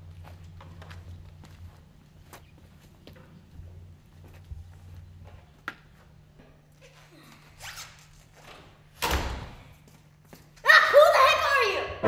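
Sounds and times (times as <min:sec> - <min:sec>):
faint footsteps and scuffs: 0:00.0 - 0:08.9, 0:09.7 - 0:10.7
wooden door shutting: 0:08.5 - 0:09.6.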